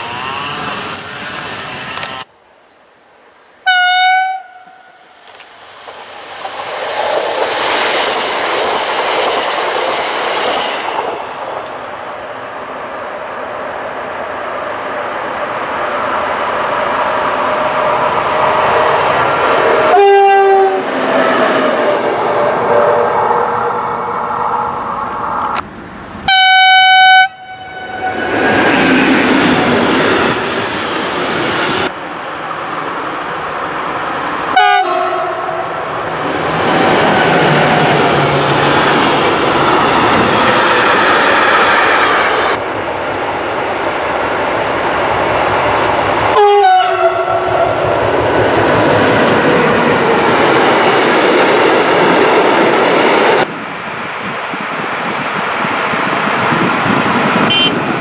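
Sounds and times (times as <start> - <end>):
freight train rolling on rails: 0.0 - 2.3, 4.6 - 58.0
train horn blast: 3.6 - 5.1, 19.9 - 20.9, 26.3 - 28.2, 34.6 - 35.8, 46.3 - 47.7, 57.5 - 57.8.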